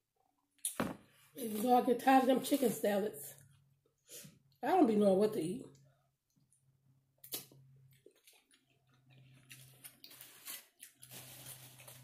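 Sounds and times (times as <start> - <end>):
soft chewing and mouth clicks: 5.8 - 11.1.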